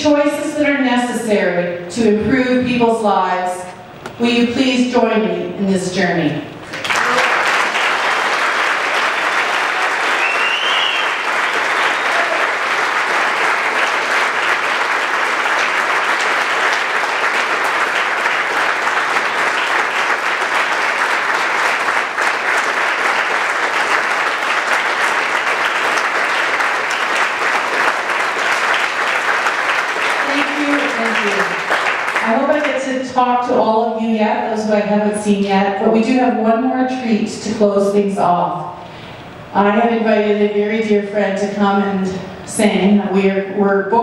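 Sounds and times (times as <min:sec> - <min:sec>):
large audience clapping: 0:06.6 - 0:32.9.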